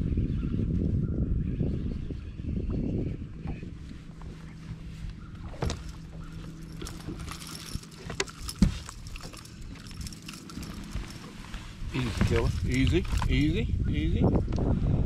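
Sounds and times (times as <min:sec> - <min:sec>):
boat motor hum: 0:02.3 - 0:14.6.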